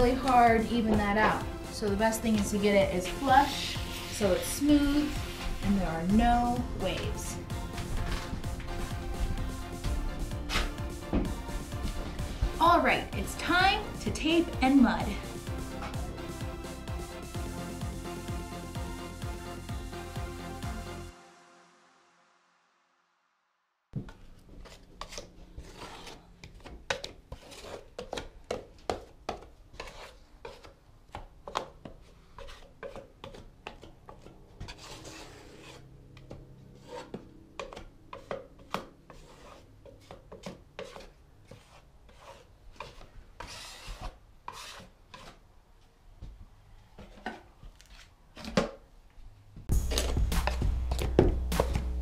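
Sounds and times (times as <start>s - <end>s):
taping knife scraping drywall: 24.3s - 45.4s.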